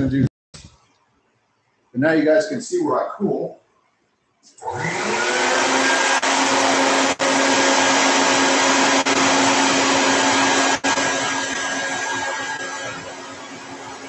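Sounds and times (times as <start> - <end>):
vacuum motor whining: 4.6 - 14.0.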